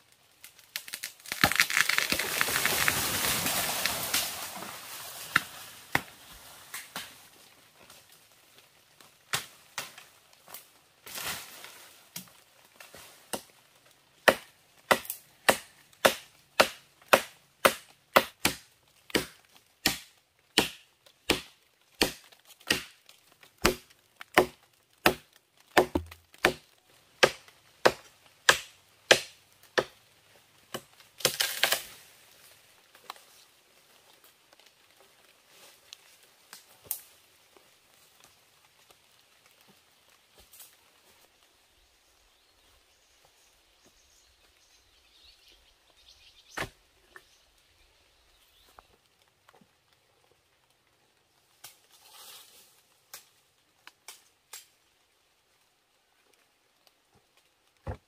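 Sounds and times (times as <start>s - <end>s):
blade chopping wood: 14.3s - 23.0s, 23.6s - 26.6s, 27.2s - 29.9s.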